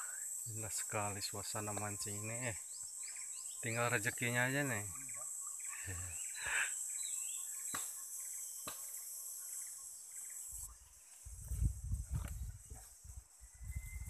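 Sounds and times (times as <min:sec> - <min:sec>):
insects chirping: 0:00.0 - 0:14.0
low rumbling on microphone: 0:11.3 - 0:14.0.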